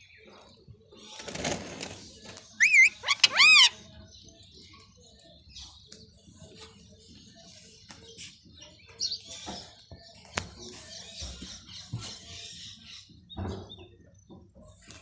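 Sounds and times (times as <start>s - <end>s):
parakeet whistled calls: 2.6s - 3.8s.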